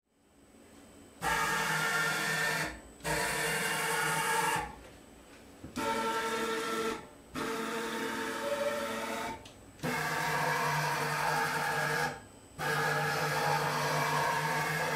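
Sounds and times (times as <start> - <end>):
motors whining: 5.8 - 14.9.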